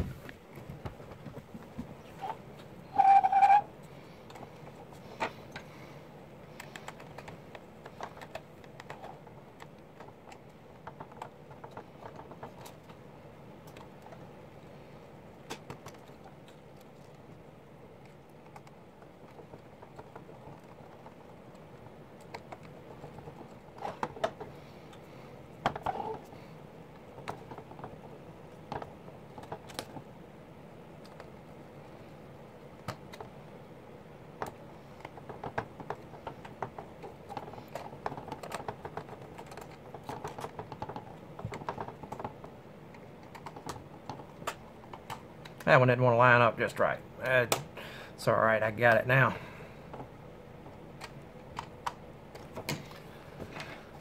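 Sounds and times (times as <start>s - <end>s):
plastic parts clicking: 6.4s - 13.0s, 34.4s - 45.6s.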